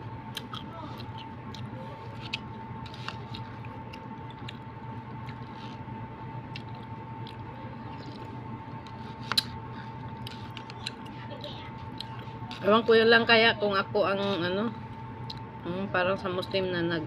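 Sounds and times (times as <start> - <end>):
steady hum: 0.0 - 17.0
person chewing: 0.2 - 12.7.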